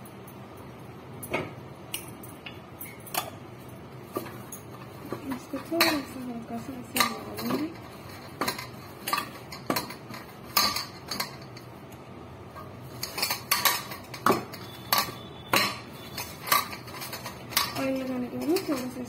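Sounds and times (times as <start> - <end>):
utensils and dishes clinking: 0.0 - 19.0.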